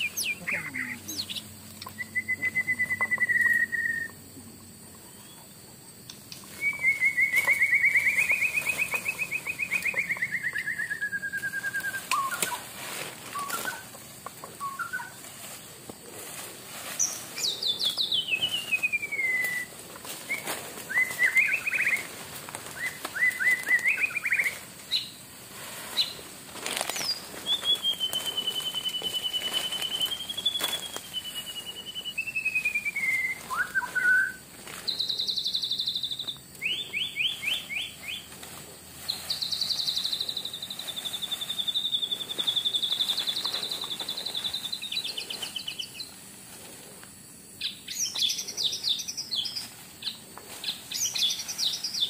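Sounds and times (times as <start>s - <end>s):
rustles and clicks: 11.3s - 35.0s, 36.2s - 47.2s.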